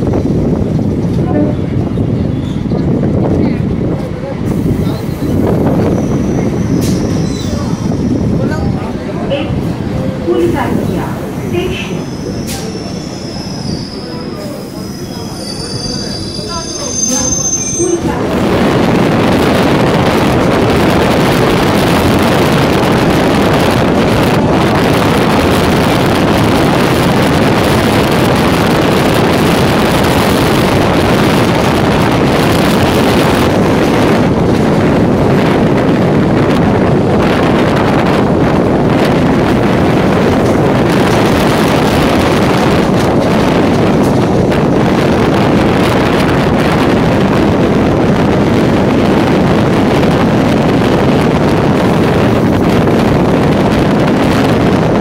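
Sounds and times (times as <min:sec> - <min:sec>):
train coach rumbling: 0:00.0 - 0:55.0
wind on microphone: 0:00.0 - 0:55.0.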